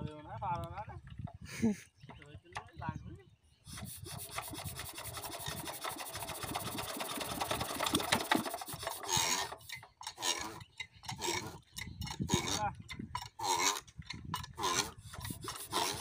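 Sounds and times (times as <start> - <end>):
diesel engine cranking: 3.7 - 13.8, 14.4 - 16.0.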